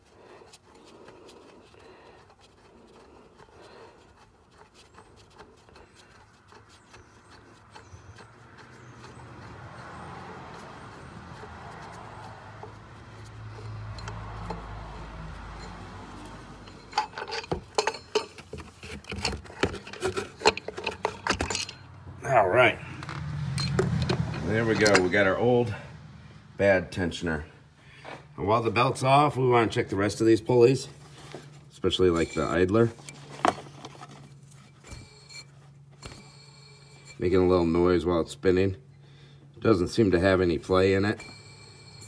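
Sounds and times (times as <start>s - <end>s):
metallic clinks and rattles: 4.1s - 22.0s, 22.9s - 25.3s, 31.9s - 37.5s, 40.7s - 42.0s.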